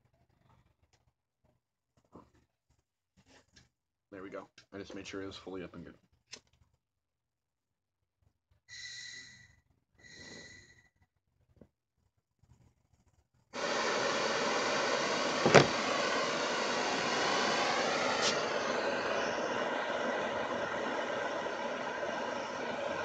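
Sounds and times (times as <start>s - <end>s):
gas whistling hiss: 13.6s - 23.0s
torch flame hissing: 13.6s - 23.0s.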